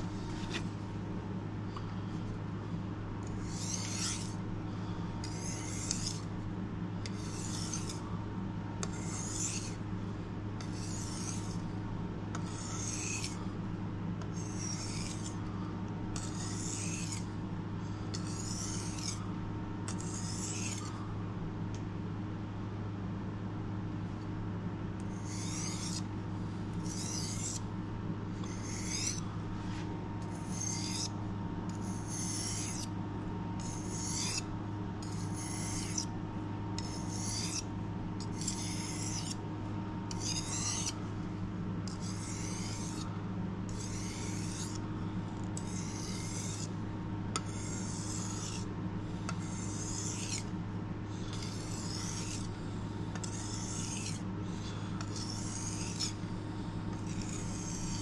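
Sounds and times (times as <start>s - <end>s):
steady low hum: 0.0s - 58.0s
knife rasping on whetstone: 3.3s - 4.4s, 5.2s - 6.3s, 7.0s - 8.0s, 8.8s - 9.8s, 10.6s - 11.6s, 12.4s - 13.4s, 14.3s - 15.4s, 16.2s - 17.3s, 18.1s - 19.2s, 19.9s - 20.9s, 25.1s - 26.1s, 26.8s - 27.7s, 28.4s - 32.9s, 33.6s - 36.2s, 36.8s - 39.4s, 40.1s - 41.0s, 41.9s - 43.1s, 43.7s - 44.9s, 45.6s - 46.8s, 47.4s - 50.5s, 51.2s - 58.0s.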